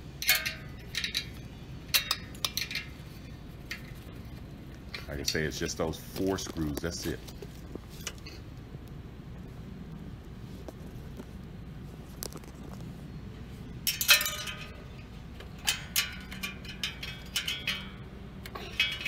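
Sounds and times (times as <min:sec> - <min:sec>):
metal wrench clinking on bolts: 0:00.2 - 0:04.0, 0:13.9 - 0:19.0.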